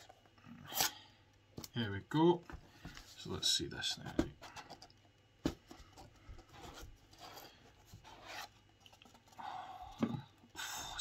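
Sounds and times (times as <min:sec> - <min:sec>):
cardboard scraping on cardboard: 0:06.5 - 0:08.6.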